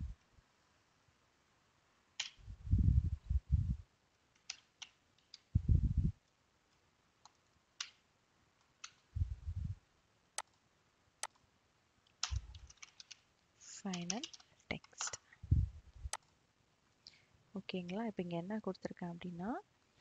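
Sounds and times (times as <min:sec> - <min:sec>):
low thumps: 0:02.4 - 0:03.8, 0:05.6 - 0:06.1, 0:09.2 - 0:09.8, 0:15.4 - 0:16.2
keyboard typing: 0:04.4 - 0:05.4, 0:12.1 - 0:13.2, 0:13.8 - 0:15.2.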